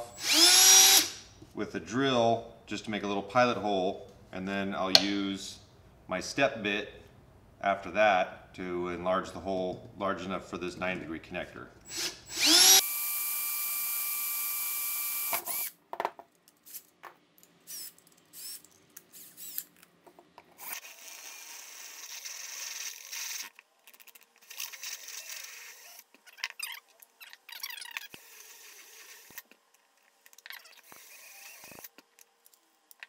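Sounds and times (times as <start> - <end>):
cordless drill boring plastic: 0.2 - 1.2, 11.9 - 15.8, 17.7 - 19.6, 20.6 - 23.6, 24.4 - 26.6, 27.3 - 29.4, 30.5 - 31.9.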